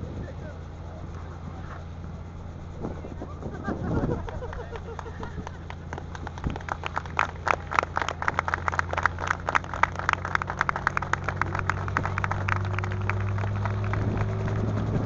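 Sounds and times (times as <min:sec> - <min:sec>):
helicopter engine hum: 0:00.0 - 0:15.0
rotor blades chopping: 0:09.4 - 0:15.0.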